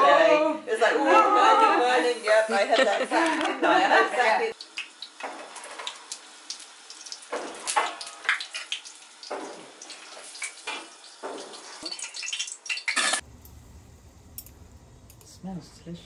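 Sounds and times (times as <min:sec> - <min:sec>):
tap water splashing into sink: 0:04.6 - 0:12.2.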